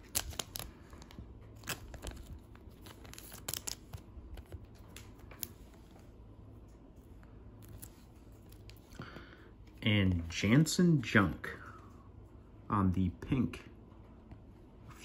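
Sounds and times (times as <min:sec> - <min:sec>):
plastic sleeve crinkling: 0:00.0 - 0:05.8.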